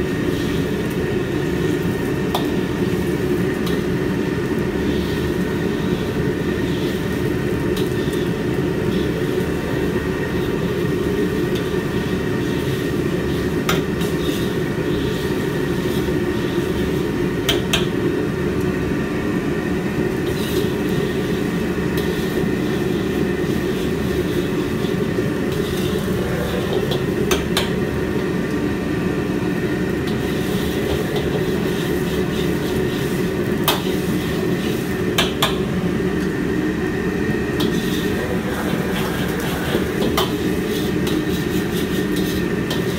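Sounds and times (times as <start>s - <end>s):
gas burner rumbling: 0.0s - 42.9s
metal spatula scraping wok: 4.8s - 17.2s, 20.2s - 27.8s, 30.0s - 35.0s, 37.6s - 42.9s.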